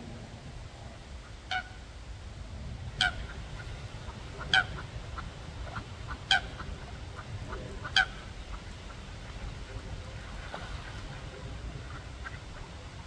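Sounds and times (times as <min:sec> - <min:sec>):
low steady background rumble: 0:00.0 - 0:13.0
waterfowl calling: 0:01.2 - 0:01.9, 0:02.9 - 0:09.4.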